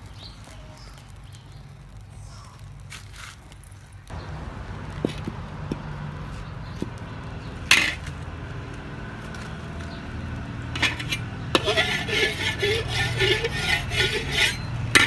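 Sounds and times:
metal spatula clanking on wok: 7.7s - 8.1s, 10.8s - 15.0s.

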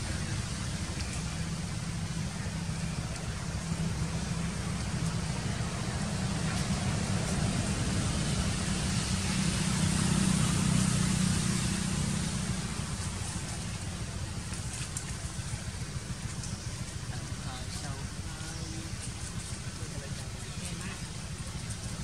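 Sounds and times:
low motor rumble: 0.0s - 22.0s.

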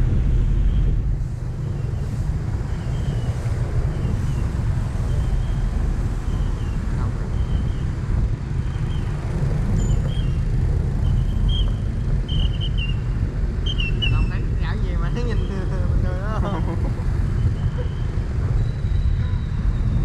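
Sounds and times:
vehicle rumble: 0.0s - 20.0s
wind buffeting microphone: 0.0s - 20.0s.

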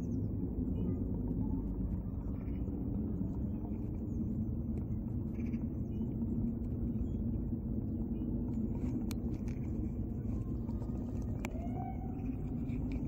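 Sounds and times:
steady low rumble: 0.0s - 13.0s
faint clicks: 8.5s - 13.0s.

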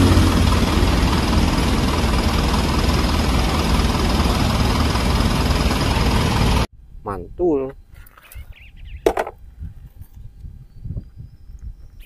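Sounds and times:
truck engine idling: 0.0s - 6.7s.

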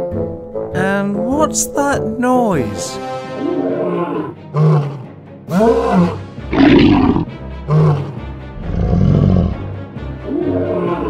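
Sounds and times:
background music: 0.0s - 11.0s
wild animal roars: 3.5s - 11.0s.

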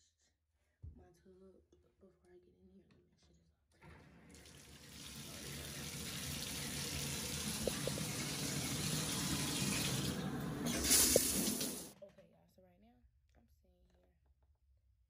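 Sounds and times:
water running into bathtub: 3.8s - 12.0s.

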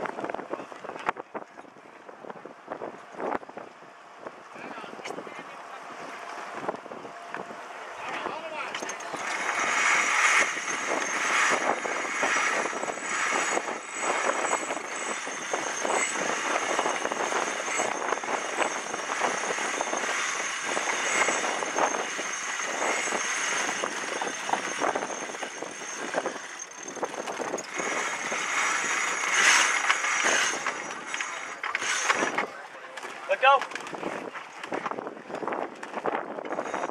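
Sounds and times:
rigging running up mast: 8.0s - 36.9s.

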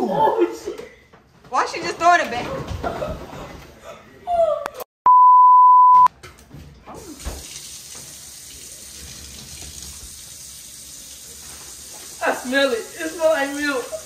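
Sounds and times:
censor bleep: 5.1s - 6.1s.

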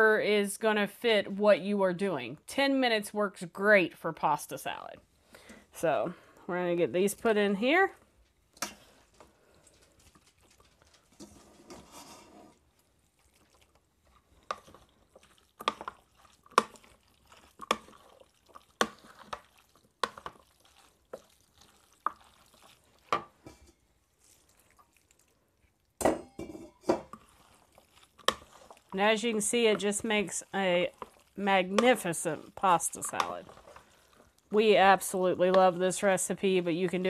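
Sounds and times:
wet stirring of pasta salad: 8.0s - 37.0s.

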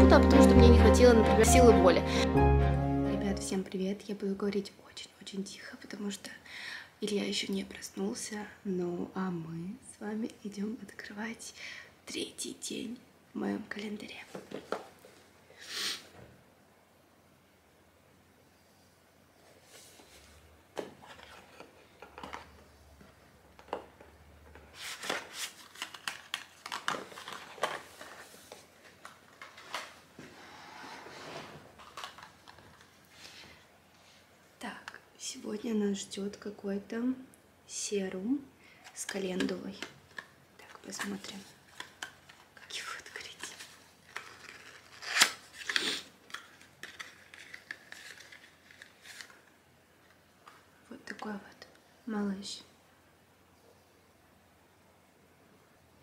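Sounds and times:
cardboard scraping and rustling: 24.6s - 32.8s
cardboard tearing: 44.1s - 49.3s.

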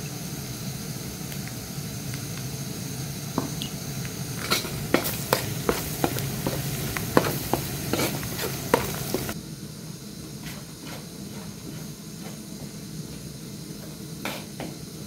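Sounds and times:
food sizzling in oil: 0.0s - 9.4s
metal spoon scraping pan: 4.4s - 9.4s.

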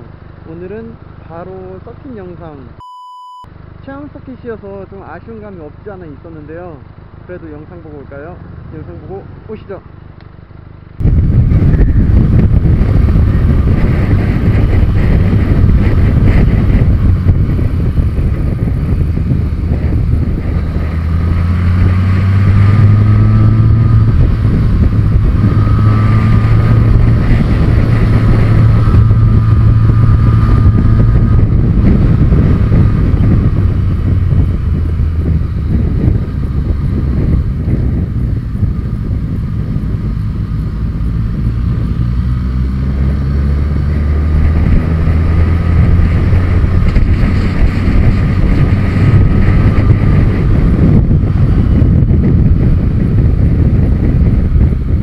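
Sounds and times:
motorcycle engine running: 3.5s - 55.0s
wind rush on microphone: 10.4s - 55.0s.

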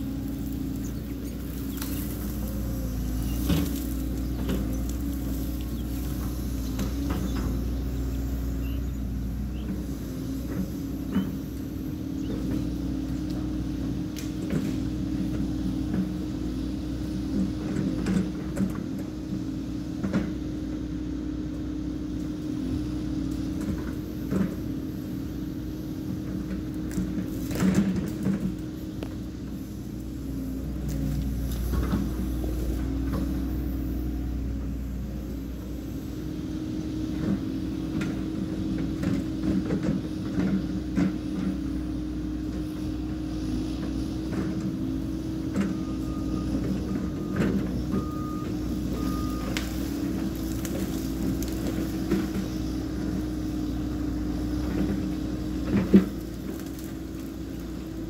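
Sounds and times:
branches crackling and snapping: 0.0s - 9.5s, 26.6s - 34.2s, 48.8s - 58.0s
excavator diesel engine running: 0.0s - 58.0s.

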